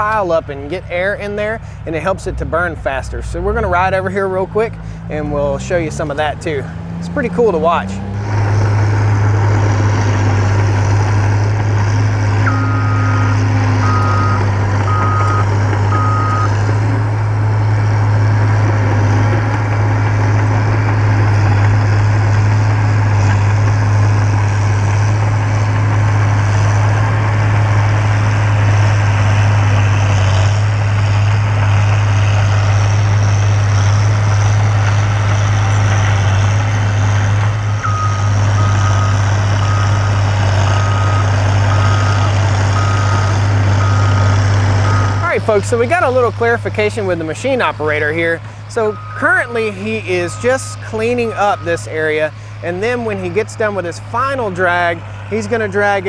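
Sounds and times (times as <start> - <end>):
diesel engine running: 0.0 - 56.0
reverse alarm beeping: 12.4 - 16.6, 37.8 - 45.2, 48.9 - 49.3.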